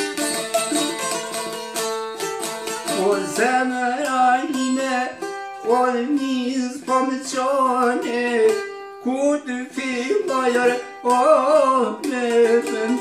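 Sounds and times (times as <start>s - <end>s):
plucked long-necked lute: 0.0s - 13.0s
man singing: 2.8s - 13.0s.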